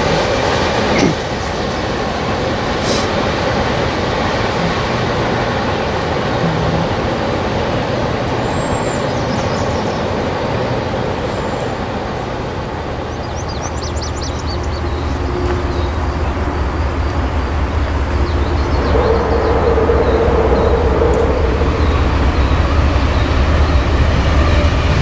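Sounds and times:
train cars rolling on rails: 0.0s - 25.0s
bird chirps and trills: 8.4s - 10.2s, 13.0s - 24.6s
deep low rumble: 13.8s - 25.0s.

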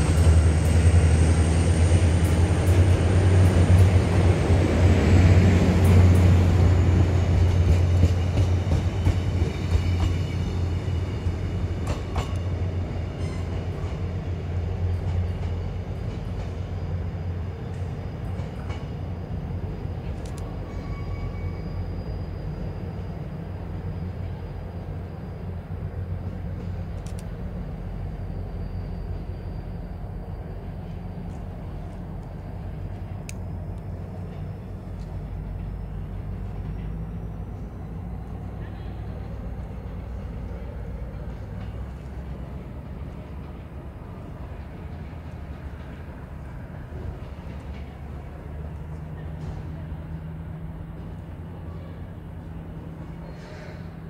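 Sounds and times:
passenger train rumbling: 0.0s - 54.0s
train wheels clicking: 2.0s - 14.2s.

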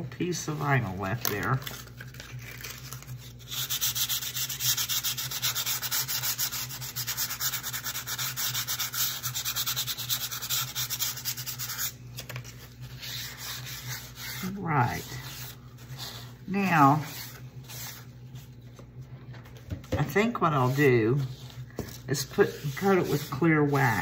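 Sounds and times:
sandpaper rubbing on wood: 3.5s - 11.9s, 12.9s - 16.2s, 22.2s - 24.0s.

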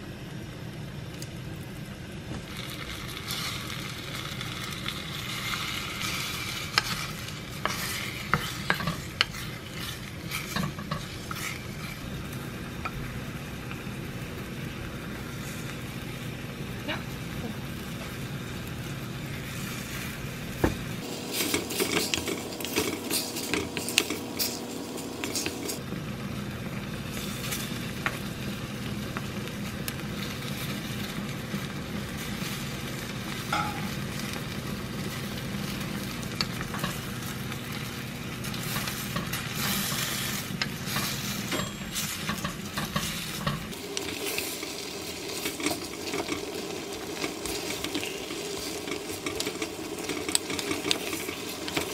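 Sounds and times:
food sizzling in a pot: 0.0s - 51.9s
utensils scraping and knocking pot: 4.9s - 13.0s, 21.0s - 25.8s, 33.3s - 34.4s, 35.0s - 51.9s.

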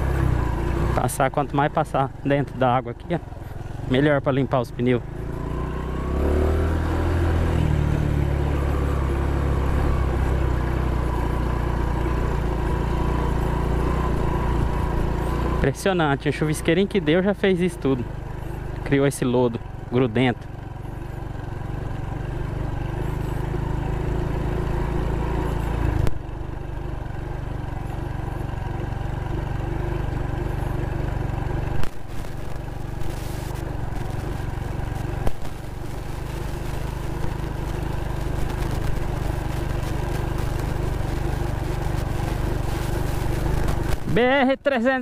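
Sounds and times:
small motorcycle engine running: 0.0s - 45.0s.

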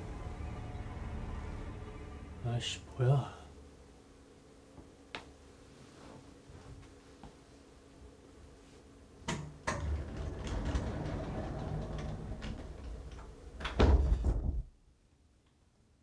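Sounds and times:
sliding door rolling in its track: 9.6s - 14.5s
door thump: 13.6s - 14.7s.

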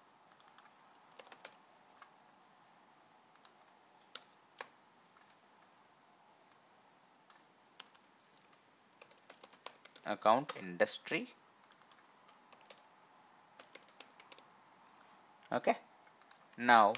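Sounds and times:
computer keyboard keystrokes: 0.3s - 2.1s, 3.4s - 5.4s, 7.3s - 10.6s, 11.6s - 12.9s, 13.6s - 14.4s, 15.4s - 16.9s.

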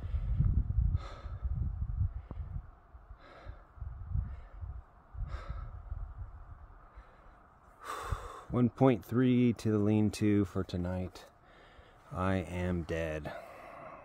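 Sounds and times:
person breathing heavily: 0.0s - 6.2s, 6.8s - 8.6s, 11.3s - 12.2s, 13.2s - 14.0s
wind gusting on microphone: 0.0s - 8.7s.

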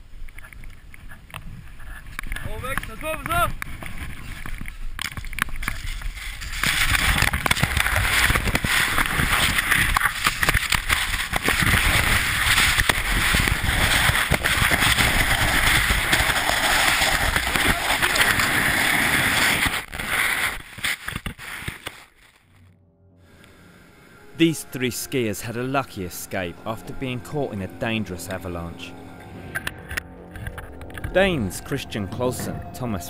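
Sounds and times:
sliding snow rushing against microphone: 5.7s - 22.4s.

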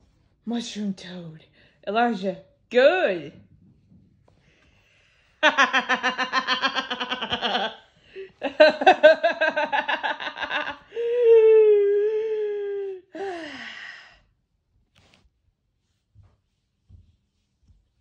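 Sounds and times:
person laughing: 5.4s - 12.5s.

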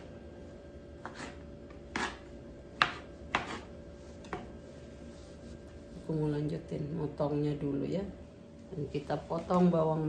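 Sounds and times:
faint steady hum: 0.0s - 10.0s
knife chopping on wooden board: 1.0s - 4.6s.

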